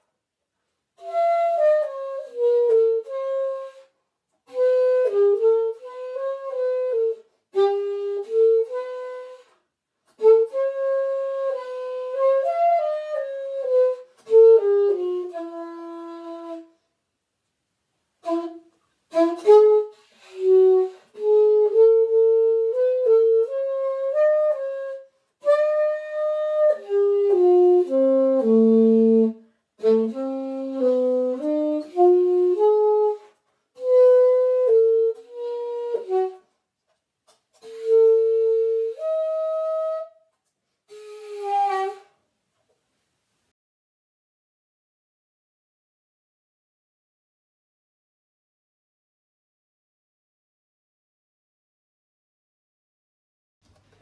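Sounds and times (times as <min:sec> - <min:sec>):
solo saxophone melody: 0:01.0 - 0:16.8, 0:18.2 - 0:36.6, 0:37.5 - 0:42.2.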